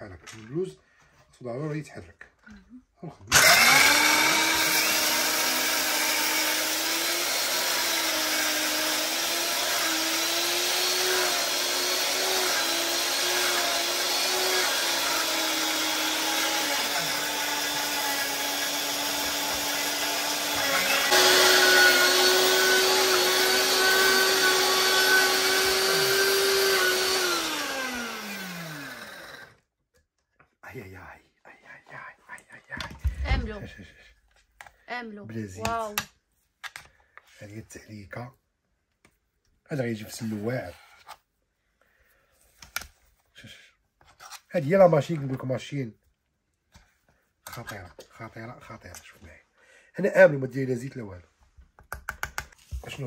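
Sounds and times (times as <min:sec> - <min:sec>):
grain mill motors whining: 0:03.3 - 0:29.4.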